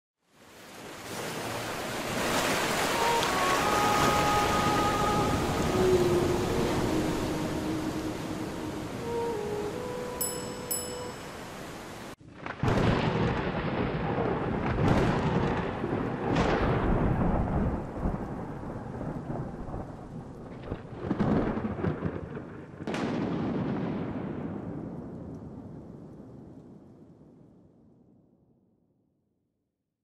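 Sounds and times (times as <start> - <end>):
rain hiss: 0.3 - 12.2
thunder cracking and rolling: 12.2 - 28.0.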